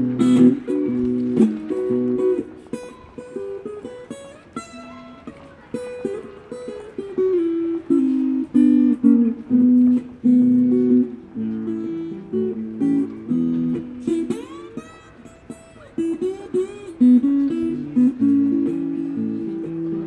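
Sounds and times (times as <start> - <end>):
acoustic guitar fingerpicked: 0.0 - 20.0.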